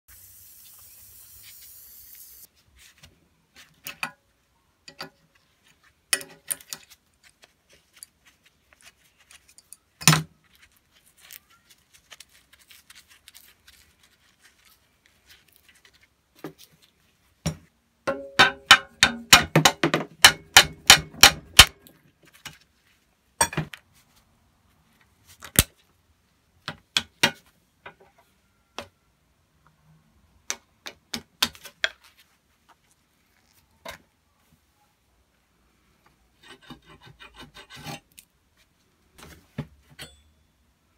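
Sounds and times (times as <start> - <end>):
metal tools clinking and knocking: 4.8 - 5.2, 6.1 - 7.0.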